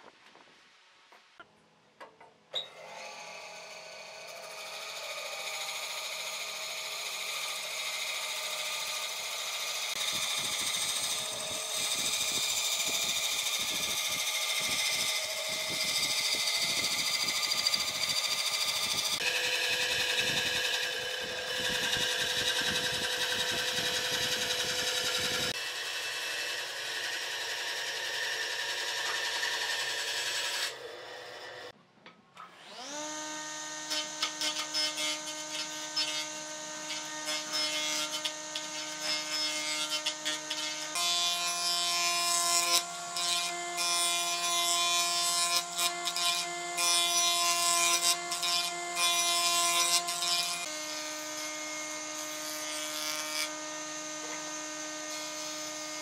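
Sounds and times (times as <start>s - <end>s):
electric power tool motor whining: 9.6s - 31.7s.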